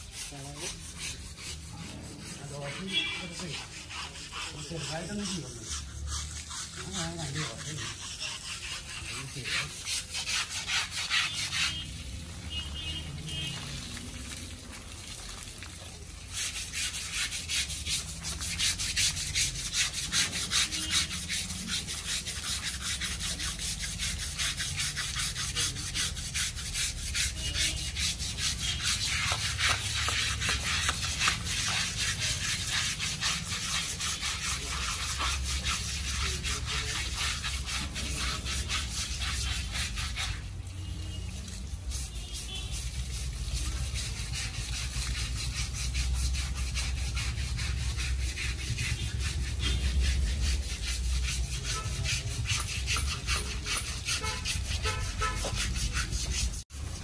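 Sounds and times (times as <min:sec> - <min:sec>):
rough rubbing strokes on hide: 0:00.0 - 0:57.0.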